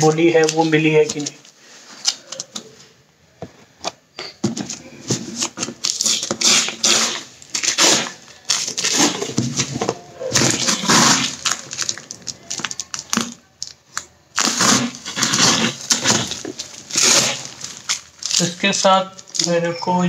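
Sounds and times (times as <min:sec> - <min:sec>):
cardboard scraping and rustling: 0:04.5 - 0:13.2, 0:14.4 - 0:18.5.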